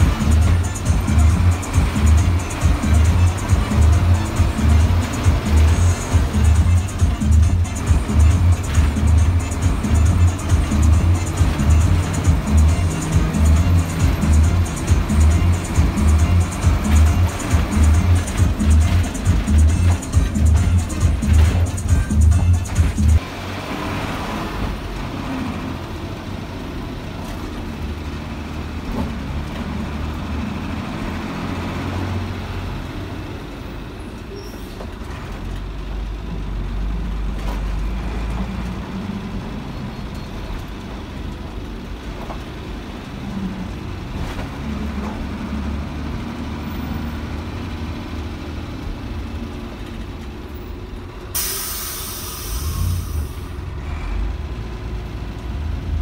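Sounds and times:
bus diesel engine running: 0:00.0 - 0:56.0
air brake hiss: 0:51.4 - 0:54.2.

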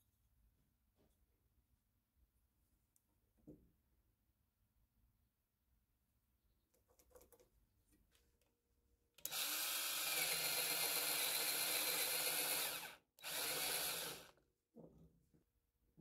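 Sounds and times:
cordless drill boring into wood: 0:09.2 - 0:14.4.

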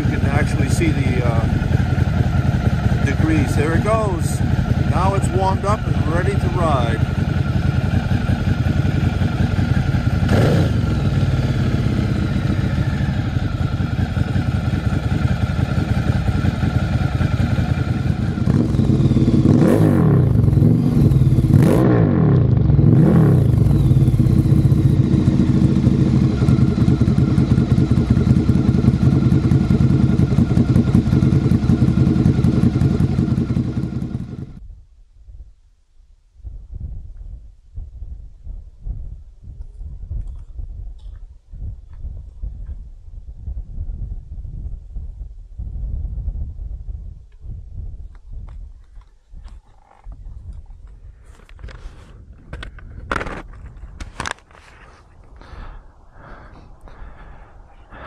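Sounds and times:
motorcycle engine throttle blips: 0:00.0 - 0:34.6.

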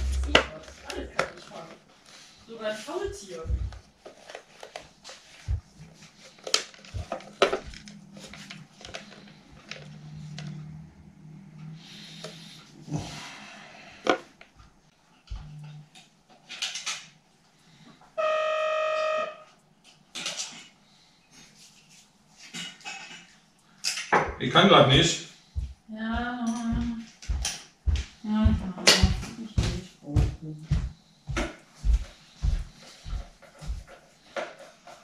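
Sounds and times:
clicks and knocks of handled parts: 0:16.0 - 0:17.1, 0:19.8 - 0:20.8
horn-like tone: 0:18.2 - 0:19.6.

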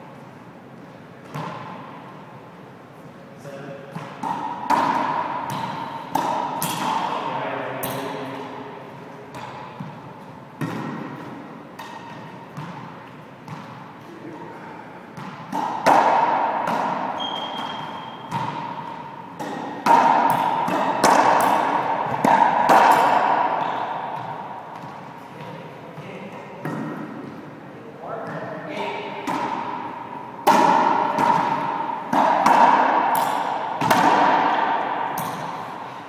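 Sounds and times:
racquetball hits echoing: 0:01.1 - 0:02.4, 0:03.8 - 0:36.0
shoe squeak: 0:17.1 - 0:18.4.

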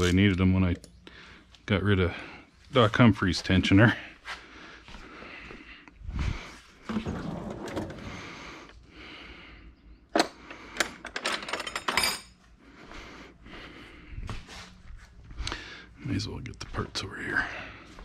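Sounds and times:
metal drawer sliding open: 0:06.9 - 0:08.2
metal tools clinking: 0:10.2 - 0:12.5.

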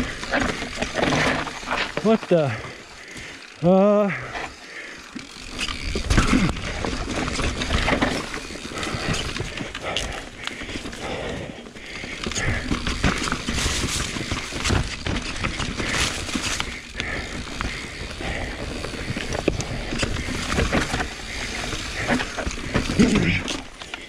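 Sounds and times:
bike rattling and knocking: 0:00.0 - 0:24.0
bike tyres rolling over dirt: 0:00.0 - 0:24.0.

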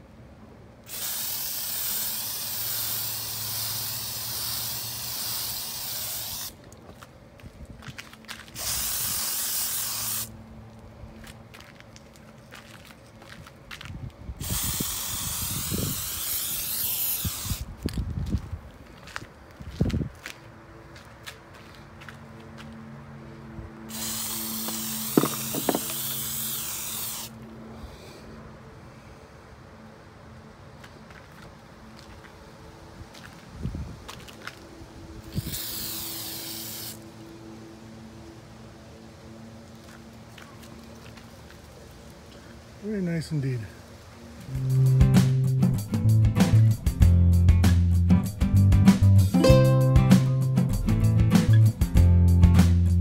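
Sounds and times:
spray paint can hissing: 0:00.9 - 0:06.6, 0:08.5 - 0:10.3, 0:14.4 - 0:17.7, 0:23.9 - 0:27.4, 0:35.2 - 0:37.0.

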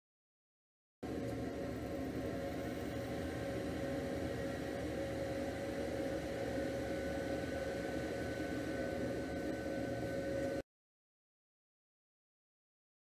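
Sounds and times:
equipment hum and hiss: 0:01.0 - 0:10.6
steady mid-pitched tone: 0:01.0 - 0:10.6.

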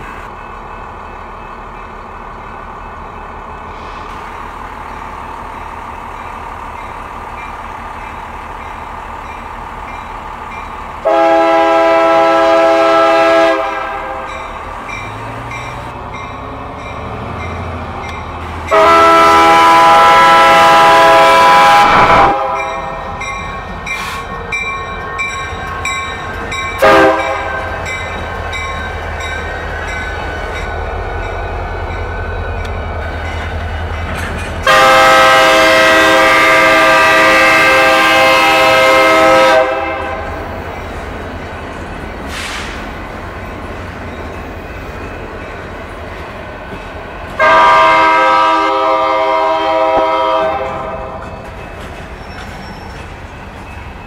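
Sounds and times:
diesel engines rumbling: 0:00.0 - 0:54.0
locomotive air horn: 0:11.0 - 0:14.3, 0:18.7 - 0:22.8, 0:26.8 - 0:27.7, 0:34.6 - 0:40.4, 0:47.4 - 0:51.2.

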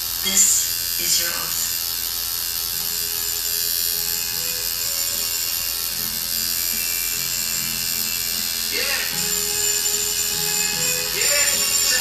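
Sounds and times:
tattoo machine buzzing: 0:00.0 - 0:12.0
faint music: 0:02.8 - 0:12.0.

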